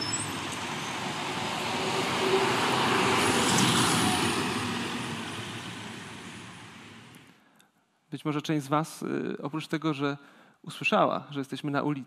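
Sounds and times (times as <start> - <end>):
street traffic: 0.0 - 7.2
vehicle passing: 0.0 - 7.2.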